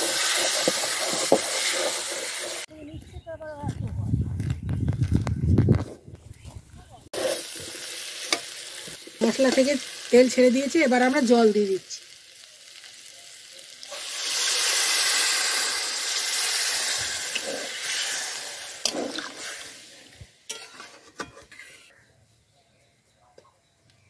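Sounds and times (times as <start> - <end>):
water sizzling in hot pan: 0.0 - 2.7, 7.1 - 20.6.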